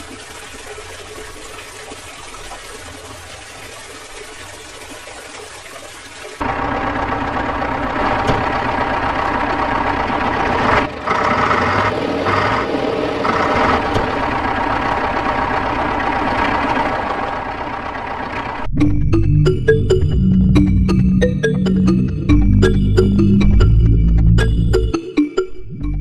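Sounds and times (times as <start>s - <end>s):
small tractor engine running: 6.4s - 18.7s
music: 18.7s - 26.0s.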